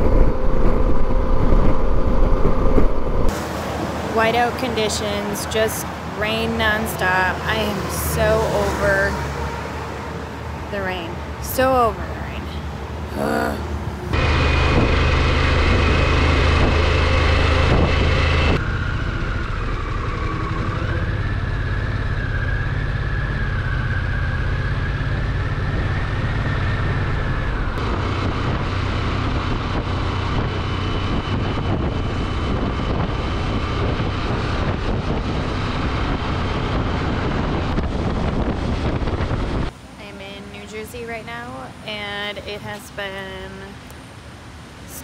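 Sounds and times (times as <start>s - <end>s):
whine: 0.0s - 3.5s, 13.2s - 39.8s
wind and road noise: 0.0s - 45.0s.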